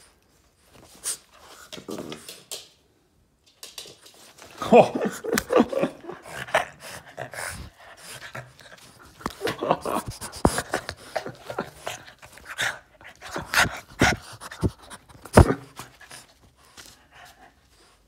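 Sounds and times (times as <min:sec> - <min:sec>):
dog panting and fussing: 0:05.8 - 0:18.0.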